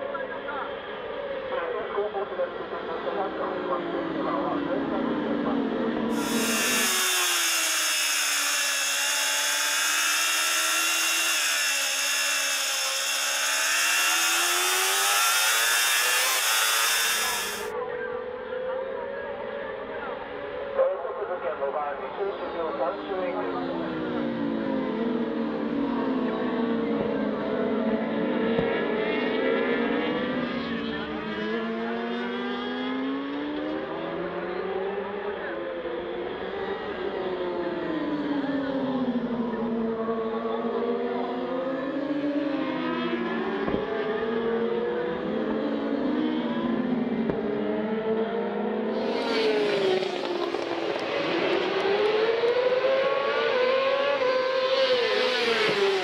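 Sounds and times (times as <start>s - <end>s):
motorcycle engine at high revs: 6.1s - 17.7s, 39.7s - 56.0s.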